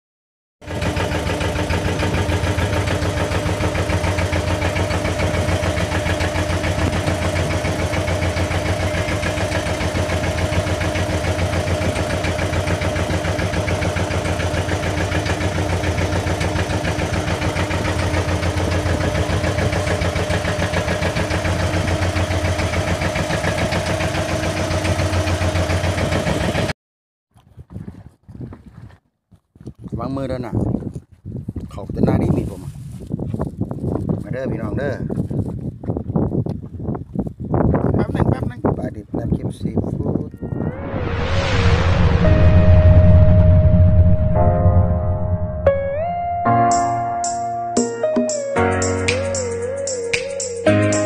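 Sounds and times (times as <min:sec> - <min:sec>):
boat engine running: 0:00.6 - 0:26.7.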